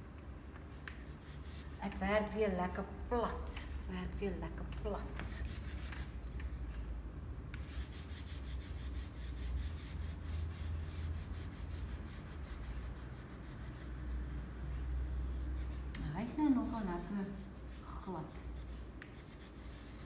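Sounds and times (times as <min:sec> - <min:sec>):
steady low hum: 0:00.0 - 0:20.0
pastel scratching on paper: 0:00.9 - 0:02.4, 0:05.0 - 0:06.2, 0:07.6 - 0:20.0.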